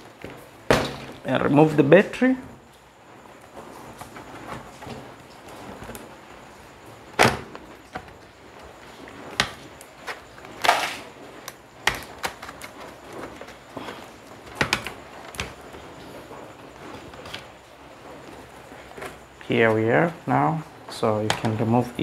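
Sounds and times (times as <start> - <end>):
plastic scraping crack: 7.1 - 19.2, 21.2 - 22.0.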